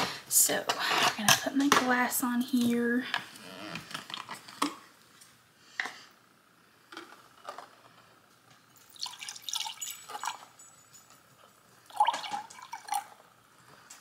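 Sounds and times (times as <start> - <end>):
juice pouring into a glass: 8.7 - 10.6, 11.8 - 13.3.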